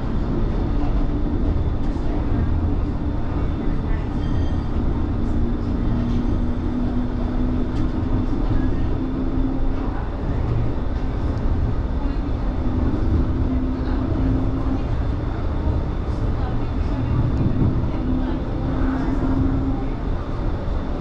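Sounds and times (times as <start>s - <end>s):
tram rumbling: 0.0s - 21.0s.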